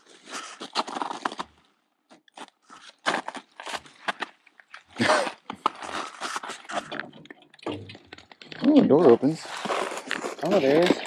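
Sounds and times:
footsteps crunching snow and leaves: 0.0s - 1.5s, 9.3s - 11.0s.

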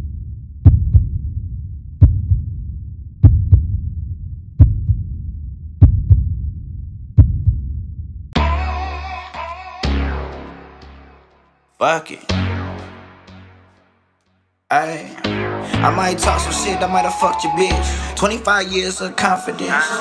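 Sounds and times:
deep heartbeat-style thumps: 0.0s - 8.3s
sustained synth chord: 9.9s - 11.6s, 12.3s - 14.1s, 15.2s - 20.0s.

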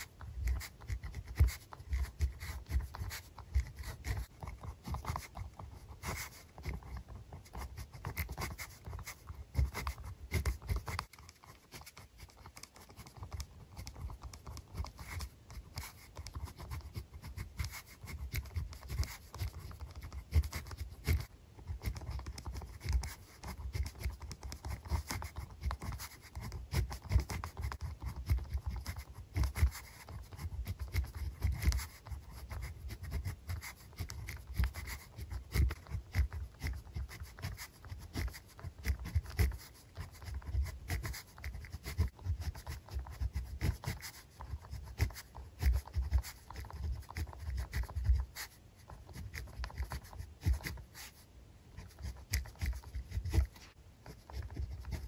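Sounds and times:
pen scratching on paper: 0.0s - 55.0s.

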